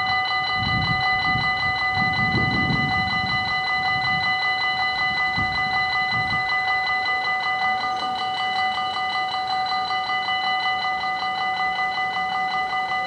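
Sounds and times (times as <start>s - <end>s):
level crossing warning bell ringing: 0.0s - 13.0s.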